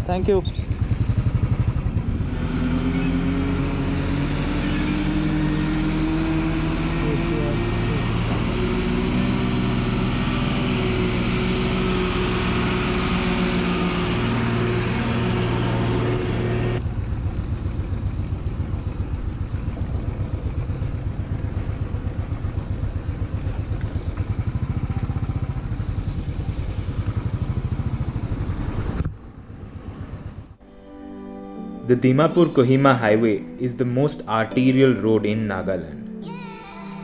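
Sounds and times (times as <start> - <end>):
motorcycle engine: 0.0 - 30.6.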